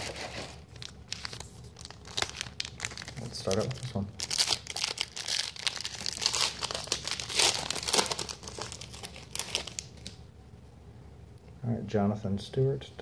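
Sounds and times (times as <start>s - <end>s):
wrapper crinkling and tearing: 0.0s - 10.2s.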